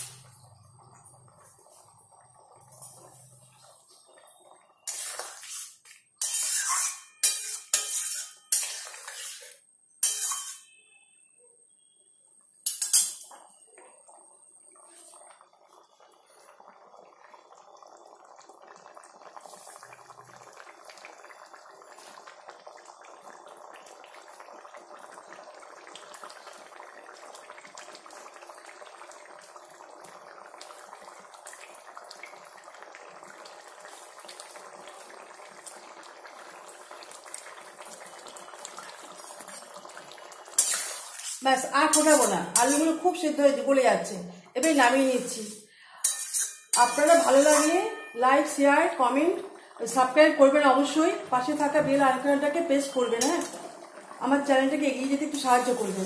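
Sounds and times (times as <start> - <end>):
curry simmering and bubbling: 0.0 - 56.0
metal spatula scraping pan: 4.9 - 10.8, 12.7 - 13.3, 40.6 - 43.2, 44.6 - 48.2, 55.3 - 56.0.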